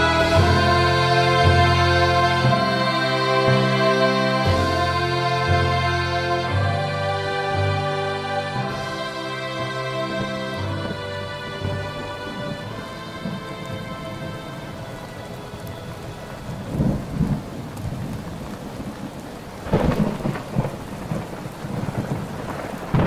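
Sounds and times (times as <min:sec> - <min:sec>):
ambient music: 0:00.0 - 0:19.0
steady rain: 0:00.0 - 0:23.0
thunder rolling: 0:10.1 - 0:23.0.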